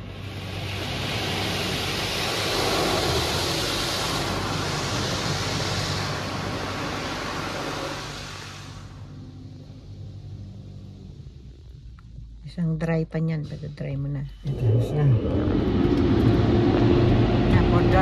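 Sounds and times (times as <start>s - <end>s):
car wash rushing hiss: 0.0s - 12.0s
low steady hum: 0.0s - 18.0s.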